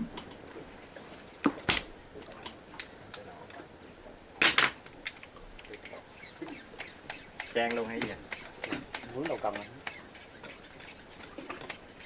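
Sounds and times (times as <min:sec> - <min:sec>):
sharp clicks and knocks: 0:04.4 - 0:10.7.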